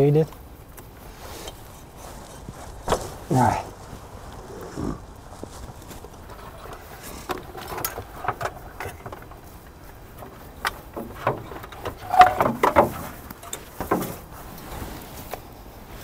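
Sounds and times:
hoses and wiring knocking and rattling: 0:05.2 - 0:15.4.

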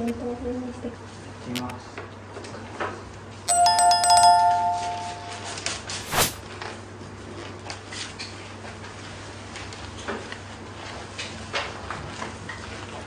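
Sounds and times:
two-note electronic chime: 0:03.5 - 0:05.6.

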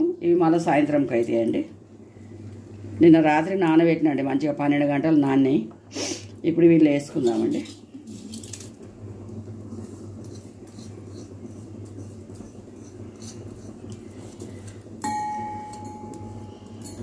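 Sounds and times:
low hum: 0:07.8 - 0:17.0
grain scraped into bowl ticks: 0:09.7 - 0:14.8.

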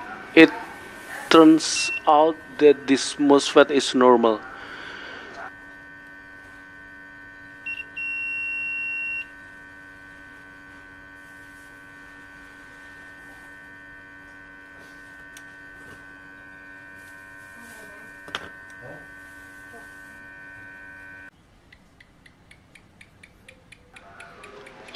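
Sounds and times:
electrical hum: 0:00.0 - 0:24.9
multimeter beeping: 0:01.3 - 0:04.5, 0:05.4 - 0:21.3.

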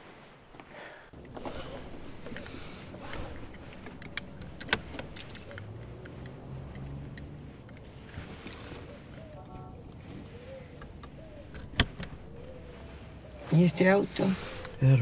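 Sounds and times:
seatbelt webbing rustling: 0:00.0 - 0:15.0
seatbelt latch clicks: 0:03.1 - 0:07.9, 0:10.8 - 0:12.6.

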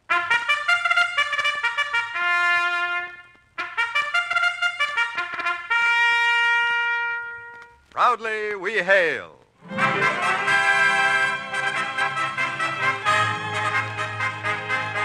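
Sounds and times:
trumpet fanfare: 0:00.0 - 0:07.8, 0:09.6 - 0:15.0.

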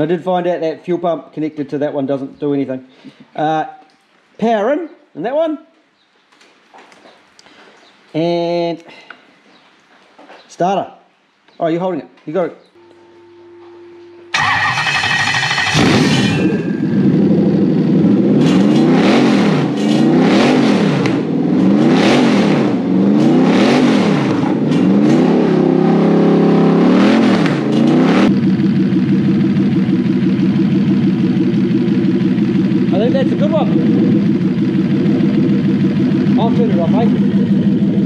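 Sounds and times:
engine starting: 0:14.3 - 0:16.9
engine idling: 0:14.3 - 0:20.1, 0:27.5 - 0:38.0
engine revving: 0:14.3 - 0:38.0.

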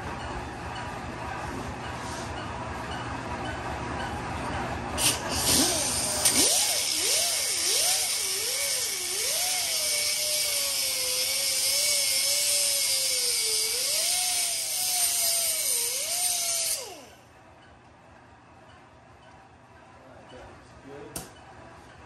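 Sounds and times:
die grinder grinding metal: 0:05.0 - 0:17.2
grinder spinning down: 0:05.0 - 0:17.2.

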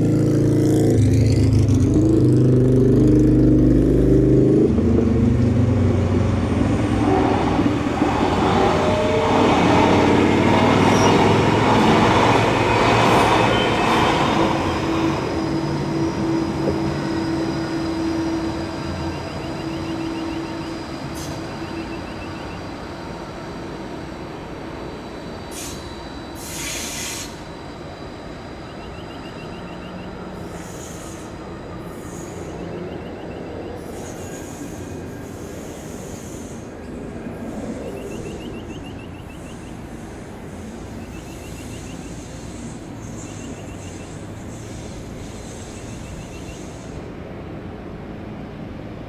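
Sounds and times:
tram rumble and motor hum: 0:00.0 - 0:49.0
wheels squealing on rail: 0:06.3 - 0:23.4, 0:24.8 - 0:47.2
burst of hiss: 0:25.5 - 0:27.5, 0:30.4 - 0:32.4, 0:33.8 - 0:36.7, 0:44.1 - 0:47.1.

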